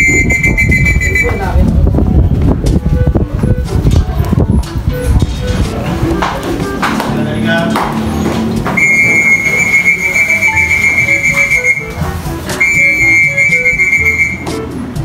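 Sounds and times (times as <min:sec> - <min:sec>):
long high whistles: 0:08.8 - 0:11.9.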